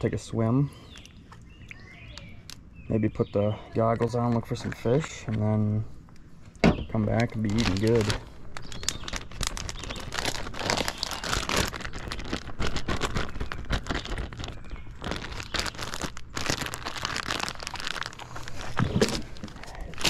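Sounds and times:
plastic bag crinkling: 6.9 - 20.0.

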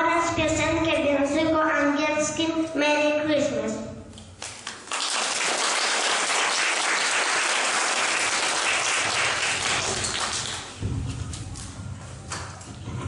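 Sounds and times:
audience applauding: 4.6 - 10.8.

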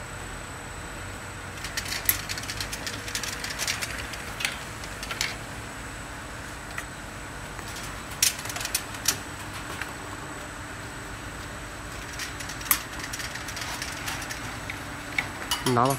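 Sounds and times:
bottle washing machine humming: 0.0 - 15.9
glass bottles clinking and rattling: 12.1 - 15.9.

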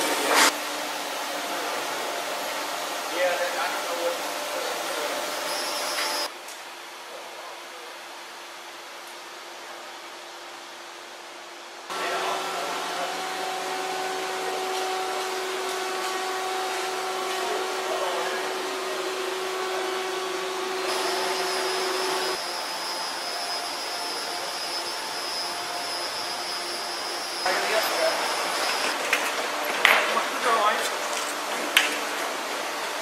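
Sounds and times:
machinery whirring hum: 0.0 - 6.3, 7.1 - 33.0
thin high whine: 3.1 - 6.3, 11.9 - 31.1.

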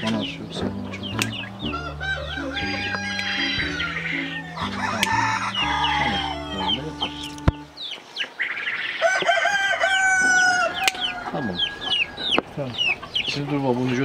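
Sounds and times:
chickens clucking and chirping: 0.0 - 14.0
sharp click: 1.1 - 1.4
rooster crowing: 1.5 - 7.6, 8.9 - 12.5.

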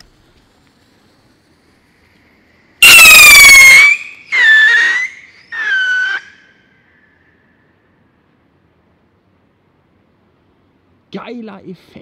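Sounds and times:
rocket whistling: 2.8 - 6.7.

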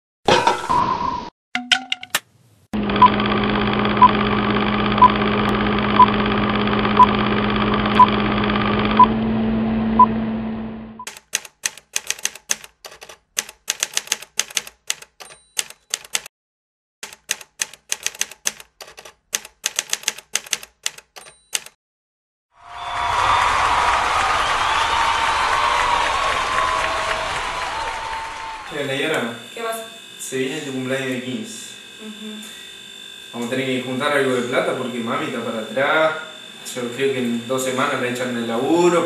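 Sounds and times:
typewriter keystroke clicks: 11.1 - 16.3, 17.0 - 21.8.

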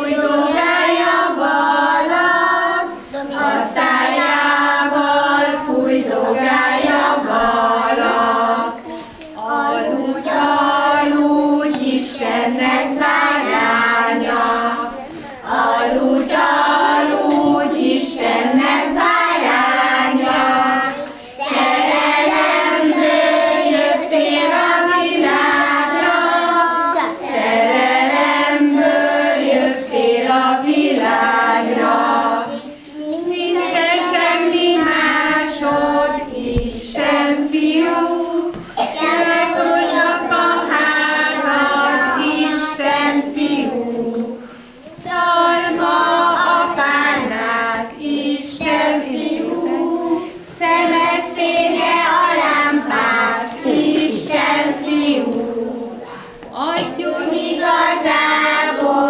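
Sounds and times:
children singing together: 0.0 - 59.0
children breathing: 44.4 - 44.9, 56.0 - 56.4.

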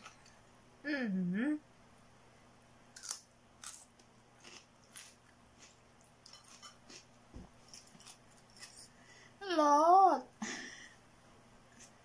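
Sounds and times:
person chewing noodles: 3.0 - 8.9.

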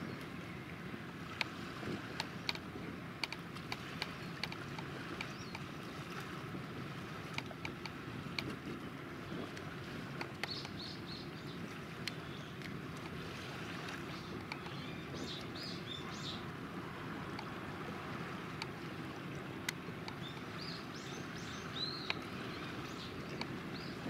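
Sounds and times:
bird chirps: 20.1 - 24.0.

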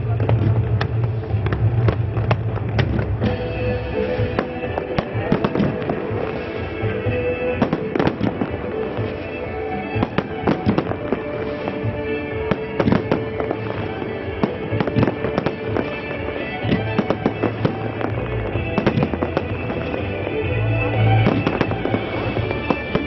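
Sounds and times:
fireworks bangs and crackles: 0.0 - 23.0
music playing: 0.0 - 23.0.

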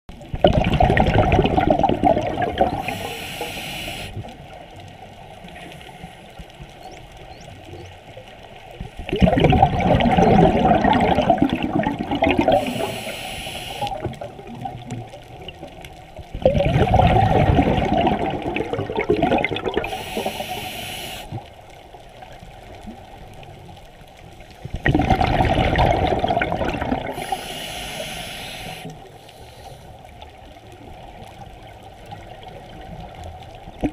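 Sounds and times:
exhaled bubbles rushing: 0.1 - 3.3, 9.0 - 20.7, 24.7 - 27.6
regulator hiss: 2.8 - 4.2, 12.5 - 14.0, 19.8 - 21.4, 27.1 - 29.9.

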